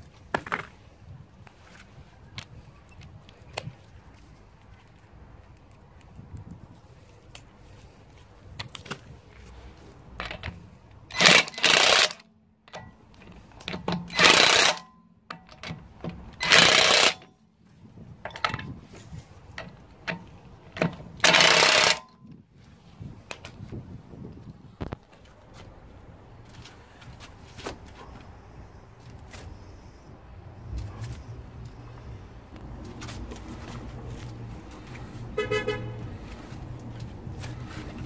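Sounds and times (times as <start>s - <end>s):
impact wrench hammering: 11.1s - 13.0s, 13.7s - 15.8s, 16.4s - 17.3s, 20.8s - 22.1s.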